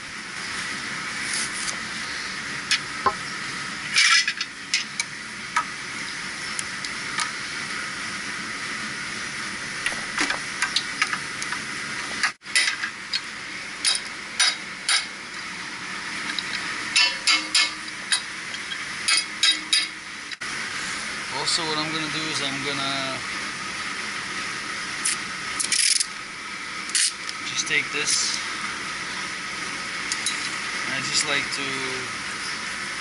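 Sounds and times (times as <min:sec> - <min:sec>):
tools clattering: 0:03.9 - 0:04.9, 0:17.0 - 0:20.0.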